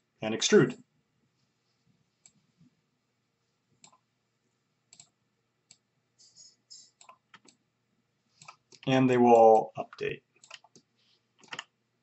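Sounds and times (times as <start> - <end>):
computer mouse clicks: 4.9 - 7.6, 8.4 - 9.7, 10.4 - 11.7.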